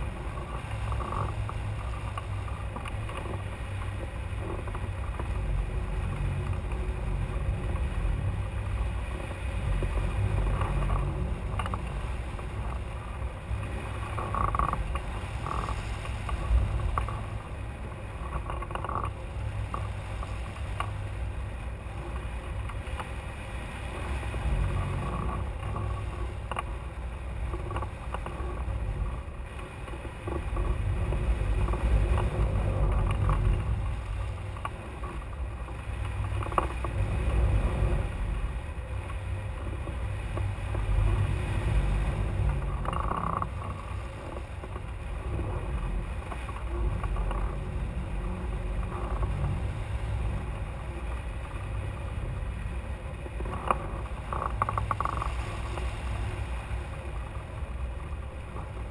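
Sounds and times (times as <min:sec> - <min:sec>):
wind rumble on camera microphone: 0:00.0 - 0:58.9.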